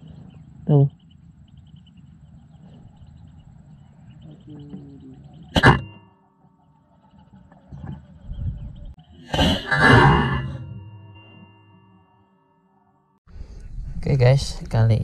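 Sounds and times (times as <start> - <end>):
high chirping: 0.0 - 9.2.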